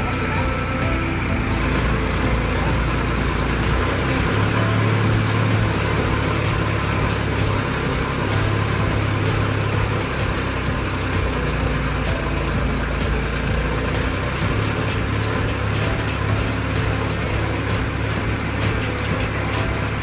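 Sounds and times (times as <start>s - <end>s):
tractor diesel engine running: 0.0s - 20.0s.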